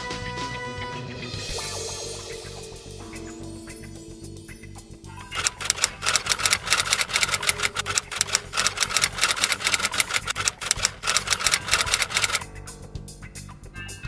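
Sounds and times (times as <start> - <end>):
faint background music: 0.0 - 14.0
typewriter key clicks: 5.4 - 12.4.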